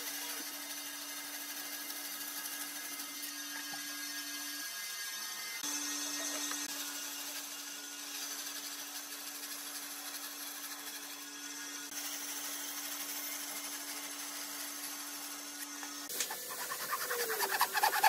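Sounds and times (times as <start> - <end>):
band saw motor hum: 0.0 - 18.0
saw blade cutting wood: 0.0 - 18.0
uneven scraping strokes: 16.1 - 18.0.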